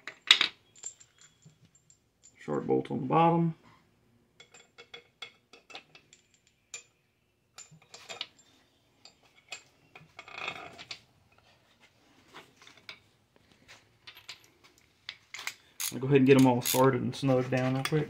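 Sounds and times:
metallic clinks of bolts: 0.0s - 2.4s.

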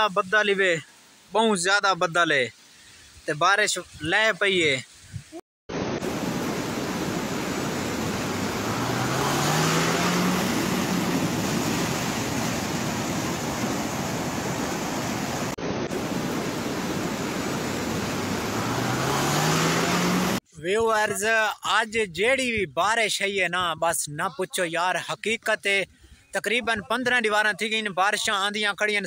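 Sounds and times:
heavy rain pouring: 5.7s - 20.4s.

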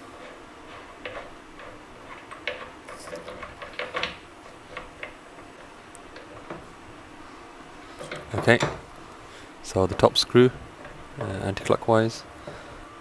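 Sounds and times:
light clicks and taps on fittings: 0.7s - 6.6s.

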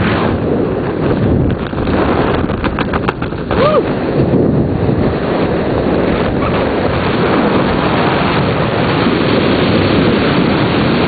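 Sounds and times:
wind rushing across microphone: 0.0s - 11.0s.

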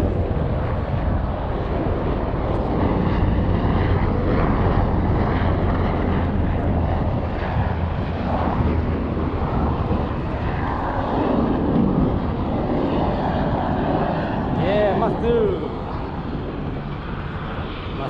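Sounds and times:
aircraft flying overhead: 0.0s - 18.0s.

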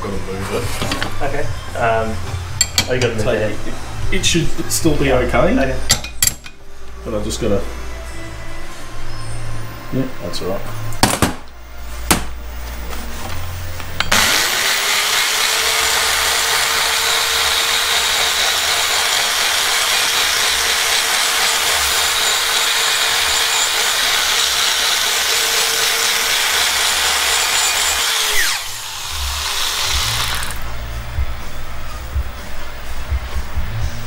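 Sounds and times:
hand grinder grinding metal: 13.9s - 30.7s.

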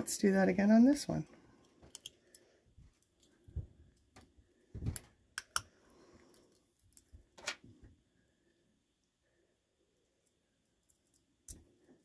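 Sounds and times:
small metal parts clicking: 1.9s - 2.4s.

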